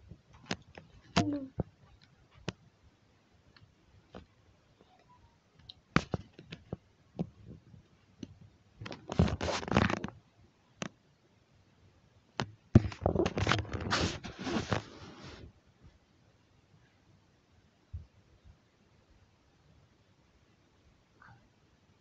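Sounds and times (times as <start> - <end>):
rustling and scraping on bedding: 8.9 - 10.1, 12.8 - 15.5.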